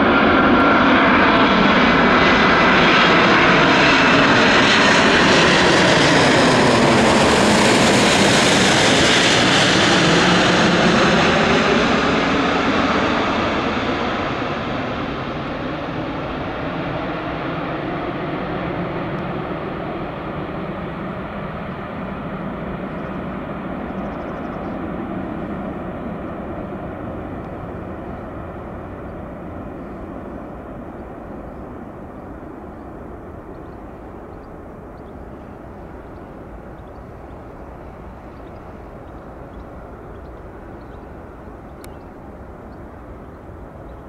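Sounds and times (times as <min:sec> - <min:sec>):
jet engines roaring: 0:00.0 - 0:44.0.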